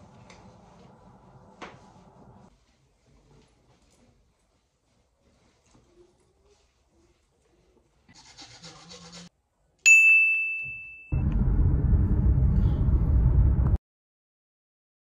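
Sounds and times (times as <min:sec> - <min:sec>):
bright bell-like ding: 0:09.9 - 0:11.2
car cabin noise while driving: 0:11.2 - 0:13.8.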